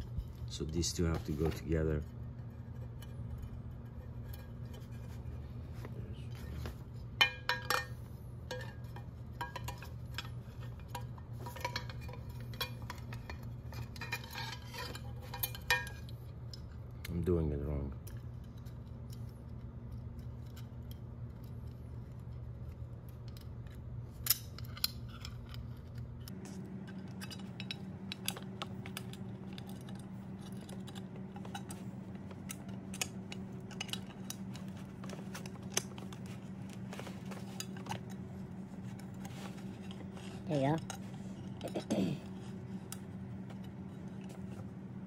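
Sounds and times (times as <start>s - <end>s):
steady low hum: 0.0s - 45.0s
metal parts clicking and clinking: 18.0s - 44.6s.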